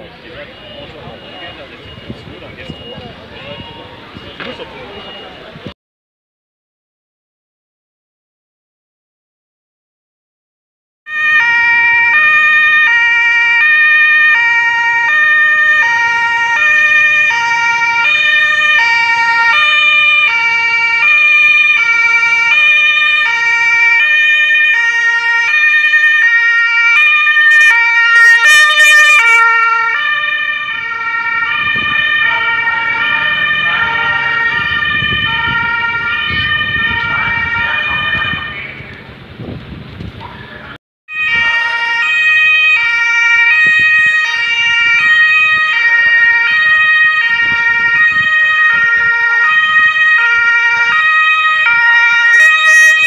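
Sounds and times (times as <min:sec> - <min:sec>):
diesel engine rumble: 0:00.0 - 0:05.7, 0:28.6 - 0:40.8
two-tone sirens: 0:00.0 - 0:05.8, 0:11.1 - 0:39.4, 0:40.3 - 0:53.0.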